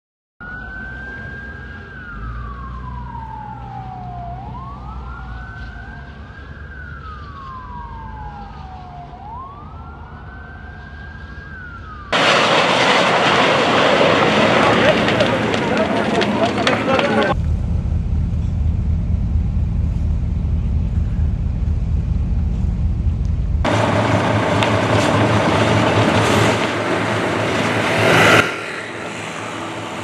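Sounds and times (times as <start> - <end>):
emergency siren wailing: 0.4 - 17.4, 23.6 - 30.0
steady rushing noise: 12.2 - 30.0.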